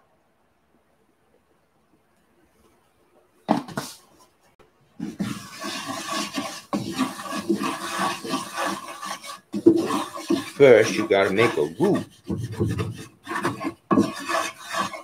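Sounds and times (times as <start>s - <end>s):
spatula scraping in skillet: 5.0s - 15.0s.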